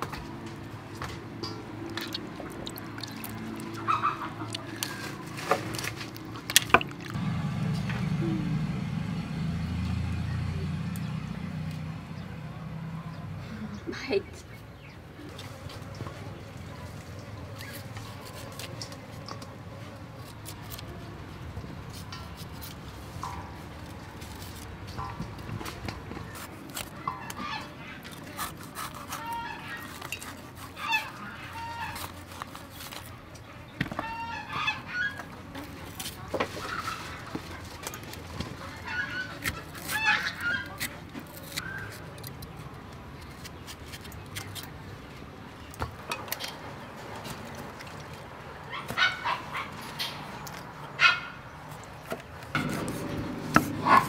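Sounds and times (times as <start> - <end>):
fowl honking and clucking: 3.8 - 5.1, 27.0 - 28.0, 30.8 - 32.1, 34.0 - 35.3.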